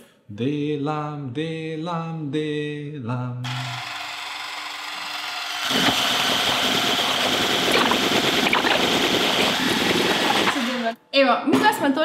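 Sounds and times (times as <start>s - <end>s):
electric hand mixer whipping batter: 3.5s - 11.0s.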